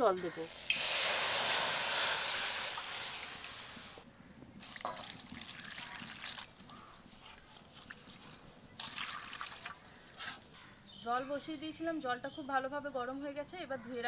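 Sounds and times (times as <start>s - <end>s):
water pouring into a wok: 0.5s - 4.0s, 4.6s - 6.5s, 8.8s - 9.8s
water dripping: 4.6s - 7.0s, 7.8s - 10.1s.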